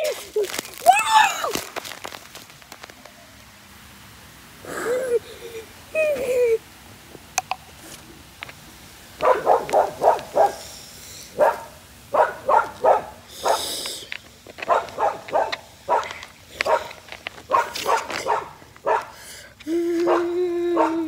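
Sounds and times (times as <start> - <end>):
dog barking: 9.2 - 10.6, 11.4 - 13.7, 14.6 - 19.2, 20.0 - 21.0.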